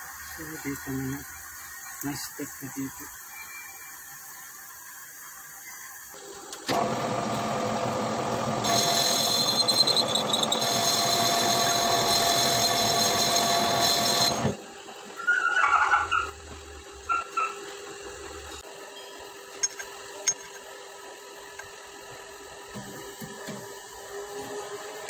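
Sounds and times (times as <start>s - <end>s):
high ringing tone: 3.2s - 4.1s
metal lathe cutting: 6.7s - 14.6s.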